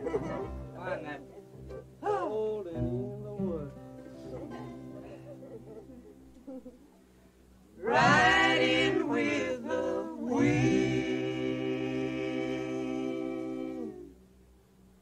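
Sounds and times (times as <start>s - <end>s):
voices singing in harmony: 7.8s - 14.2s.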